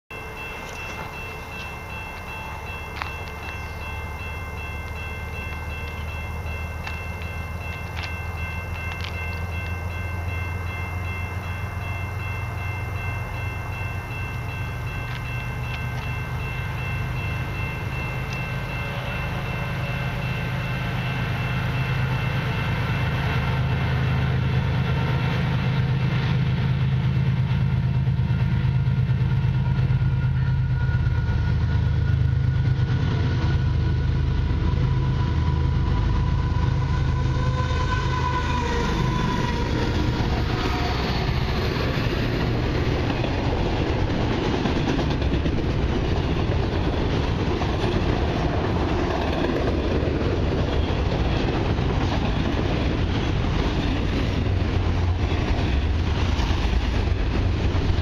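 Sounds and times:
faint high-pitched ringing: 0.1s - 24.1s
diesel locomotive engine rumble: 0.1s - 58.0s.

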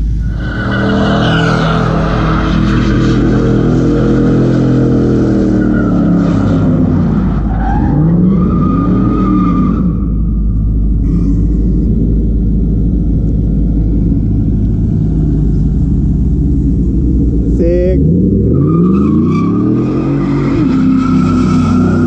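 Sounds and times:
engine revving: 0.0s - 22.0s
tyres squealing on pavement: 0.2s - 10.5s, 18.5s - 22.0s.

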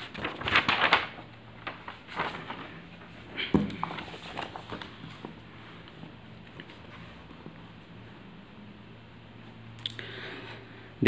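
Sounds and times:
paper rustling: 0.0s - 8.2s.

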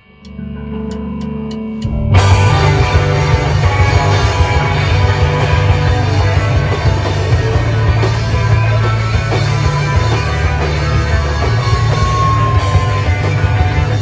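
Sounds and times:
live rock band playing: 0.8s - 14.0s.

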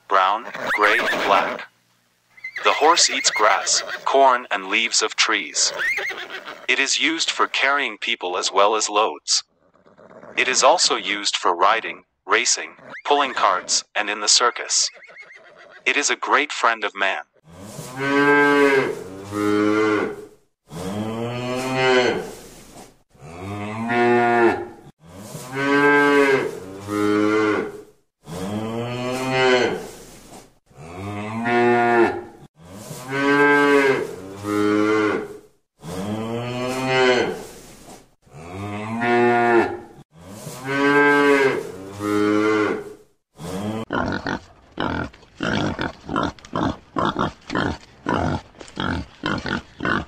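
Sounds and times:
cow mooing: 17.4s - 22.3s, 23.2s - 29.9s, 30.8s - 37.4s, 38.3s - 44.4s.

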